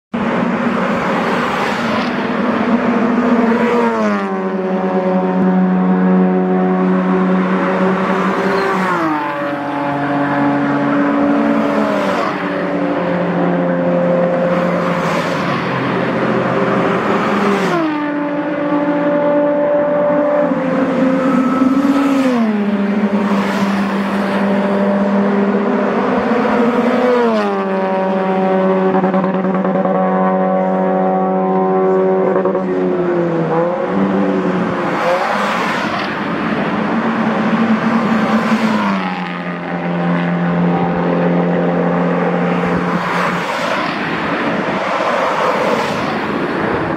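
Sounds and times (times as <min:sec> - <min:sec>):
rush of air and tyre noise: 0:00.1 - 0:29.9, 0:30.6 - 0:46.9
racing cars passing at speed: 0:00.1 - 0:46.9.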